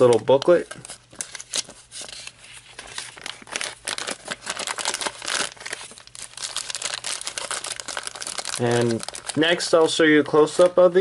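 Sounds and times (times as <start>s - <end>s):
plastic wrapping crinkling: 0.0s - 11.0s.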